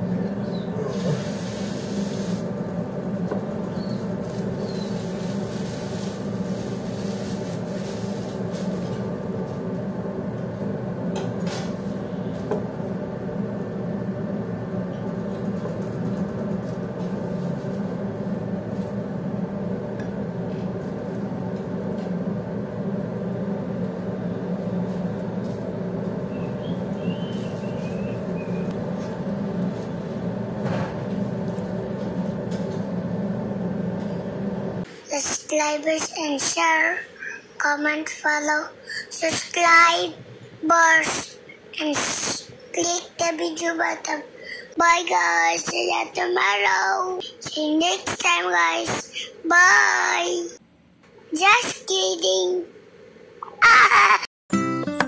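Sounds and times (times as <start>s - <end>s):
steady mechanical hum: 0.0s - 54.3s.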